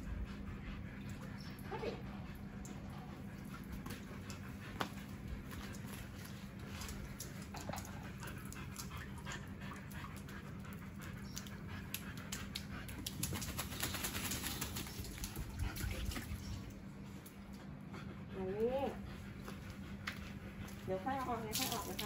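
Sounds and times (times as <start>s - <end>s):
dog panting: 0.0s - 16.4s, 17.2s - 22.0s
water spattering on tiled floor: 11.3s - 16.5s, 21.2s - 22.0s.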